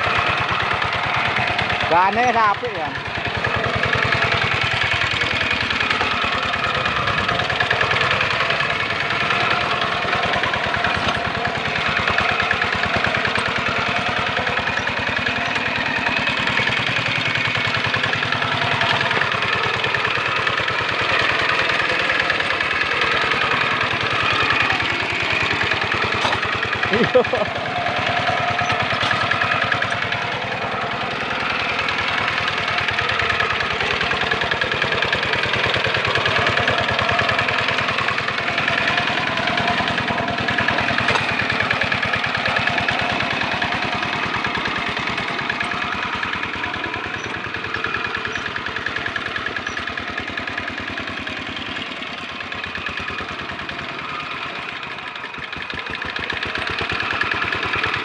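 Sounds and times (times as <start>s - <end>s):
diesel tractor engine running: 0.0s - 58.0s.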